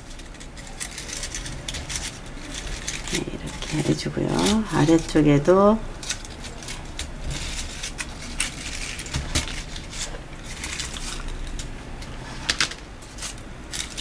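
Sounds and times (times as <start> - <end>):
paper flowers rustling: 0.0 - 14.0.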